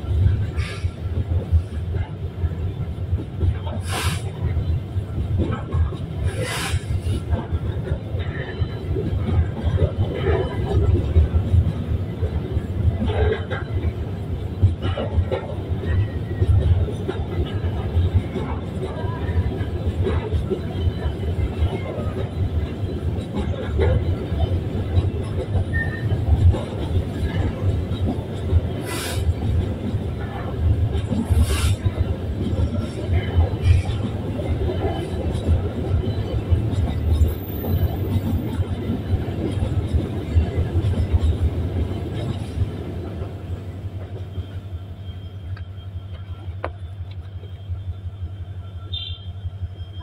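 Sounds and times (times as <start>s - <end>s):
wheels clattering on rails: 0.0s - 47.7s
train rumbling past: 0.0s - 50.0s.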